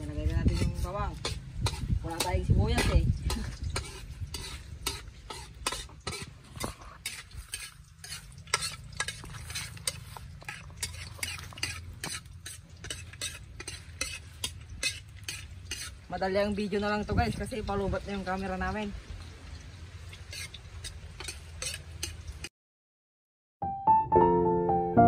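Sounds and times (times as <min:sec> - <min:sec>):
metal spatula scraping wok: 0:00.0 - 0:17.6, 0:20.2 - 0:22.5
food frying in oil: 0:00.0 - 0:22.5.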